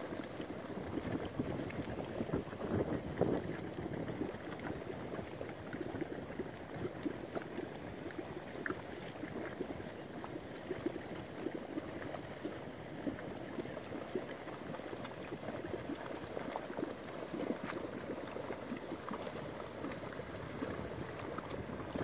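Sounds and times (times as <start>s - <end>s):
mudpots bubbling: 0.0s - 22.0s.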